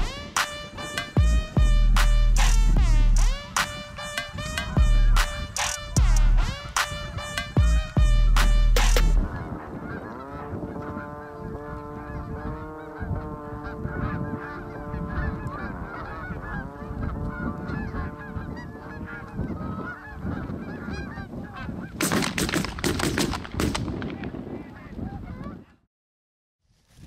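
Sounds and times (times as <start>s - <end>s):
music: 0.0s - 9.2s
geese honking: 0.0s - 22.0s
shotgun shots: 22.0s - 24.3s.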